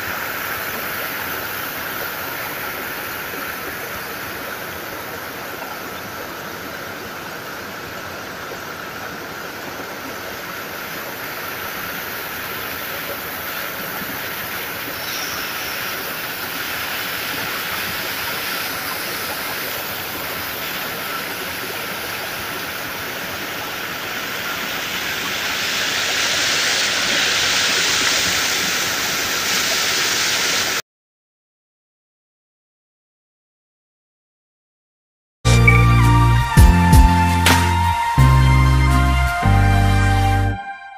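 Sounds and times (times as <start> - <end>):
waterfall rushing over rocks: 0.0 - 30.8.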